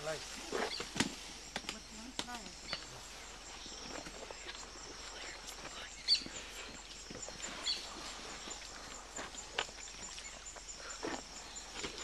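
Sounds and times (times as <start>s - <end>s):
insect chorus: 0.0s - 12.0s
bird chirps: 2.4s - 9.0s.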